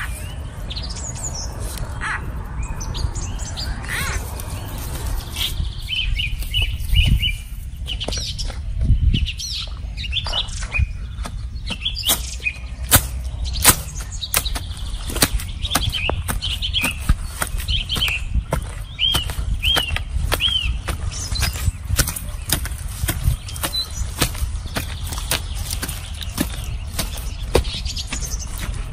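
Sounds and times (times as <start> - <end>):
small birds chirping: 0.0 - 28.9
digging tool striking soil: 11.2 - 28.9.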